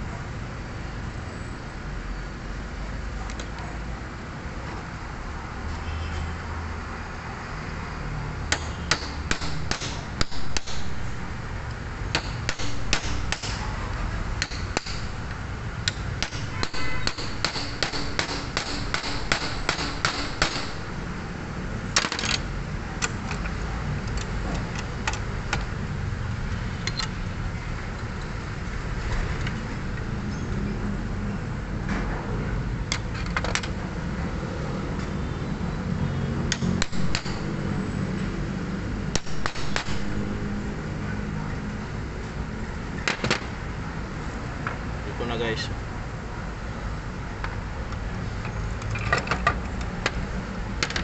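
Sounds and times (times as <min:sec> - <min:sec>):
metal tools clicking and tapping: 0:14.4 - 0:20.9, 0:22.0 - 0:25.7, 0:26.8 - 0:27.2, 0:36.5 - 0:37.6.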